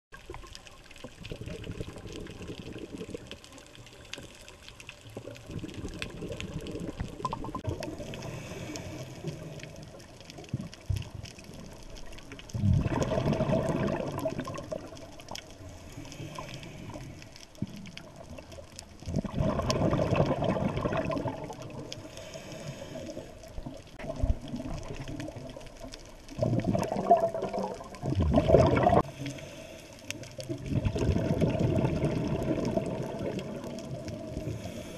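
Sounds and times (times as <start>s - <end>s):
diver's bubbles gurgling: 0.1s - 29.2s, 30.1s - 34.9s
underwater hiss: 6.2s - 10.1s, 12.8s - 17.9s, 19.5s - 24.0s, 28.5s - 30.7s, 31.4s - 34.9s.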